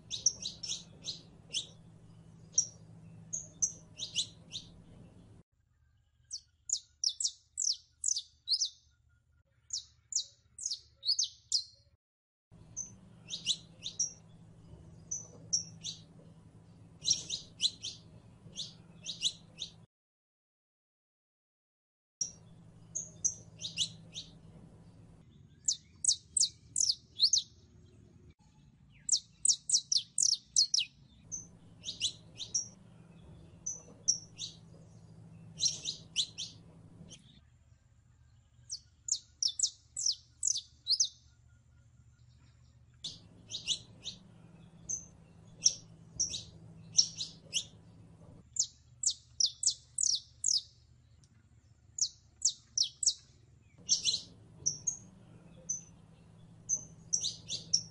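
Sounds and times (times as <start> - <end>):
finch singing sharp high chirps: 0.0 - 4.8, 6.3 - 8.8, 9.7 - 11.8, 12.7 - 14.3, 15.0 - 16.1, 17.0 - 19.8, 22.2 - 24.4, 25.5 - 27.6, 28.9 - 32.8, 33.4 - 37.4, 38.7 - 41.3, 43.1 - 47.9, 48.5 - 50.7, 52.0 - 53.2, 53.8 - 57.9.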